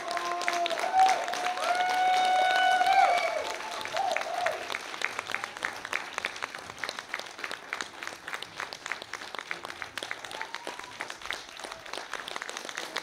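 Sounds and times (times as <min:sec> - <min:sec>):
high call from crowd: 0:00.0 - 0:05.7
audience applauding: 0:00.0 - 0:13.0.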